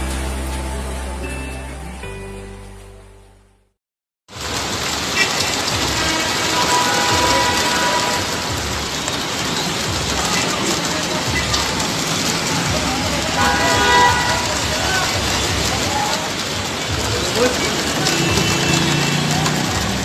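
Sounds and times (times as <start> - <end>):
heavy rain and hail on pavement: 4.3 - 20.0
vehicles rumbling through water: 4.3 - 20.0.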